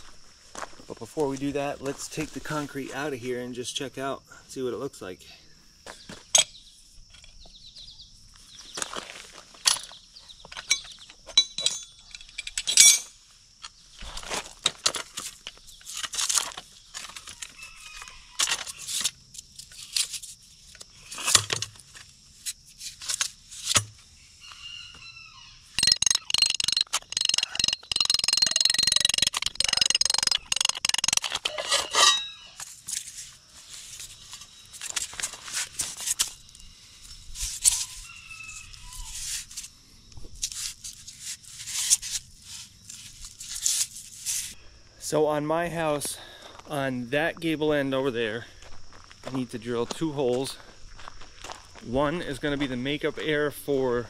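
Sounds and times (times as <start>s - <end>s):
concrete core clinking and scraping: 9.6s - 13.8s, 25.8s - 36.4s
rapid rattling and scraping: 25.8s - 34.1s.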